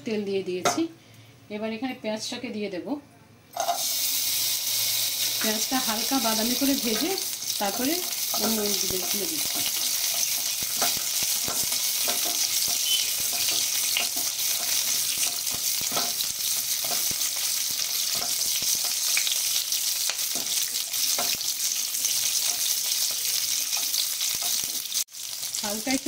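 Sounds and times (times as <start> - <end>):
onions sizzling in oil: 3.6 - 26.0
spatula scraping and tapping pan: 6.8 - 19.4, 20.1 - 21.5.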